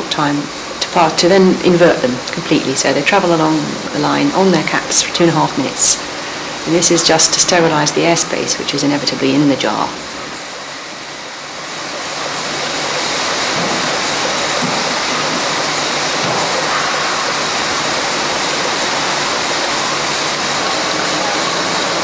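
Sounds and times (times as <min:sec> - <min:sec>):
production line rushing hiss: 0:09.8 - 0:22.0.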